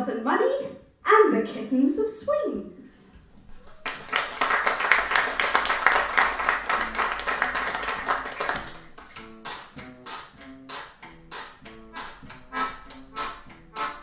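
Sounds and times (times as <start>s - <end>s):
audience applauding: 3.6s - 9.2s
band playing sustained notes: 11.3s - 14.0s.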